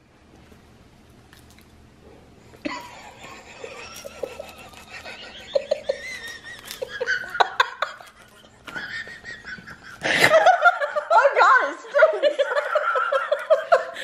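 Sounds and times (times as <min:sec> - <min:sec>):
dog chewing: 0:00.2 - 0:02.6.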